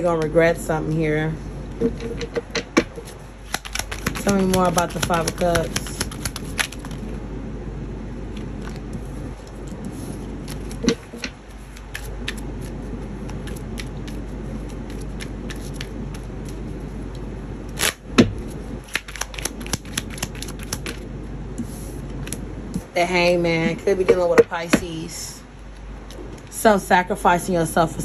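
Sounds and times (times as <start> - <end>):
low background hum: 0.0 - 28.0
cards clicking and tapping on table: 3.5 - 6.7.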